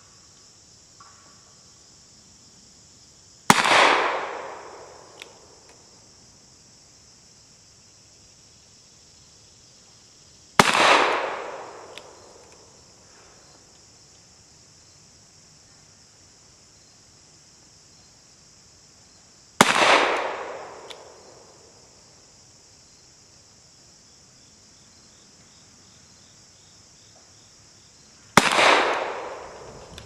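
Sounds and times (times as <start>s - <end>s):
insects buzzing: 0.0s - 30.0s.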